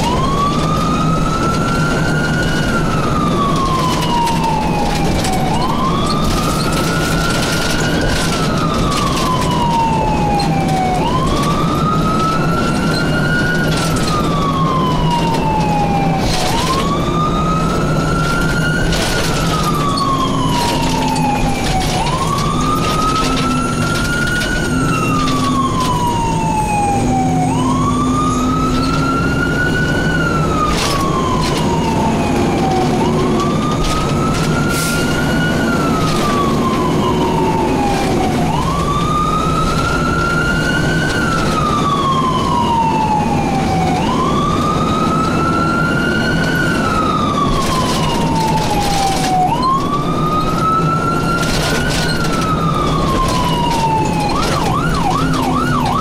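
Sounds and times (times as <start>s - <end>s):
fire engine siren wailing: 0.0s - 56.0s
truck engine drone: 0.0s - 56.0s.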